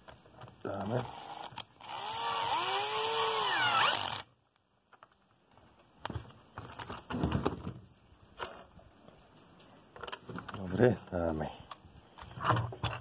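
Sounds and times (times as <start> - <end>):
cordless drill motor whine: 0.8 - 4.3.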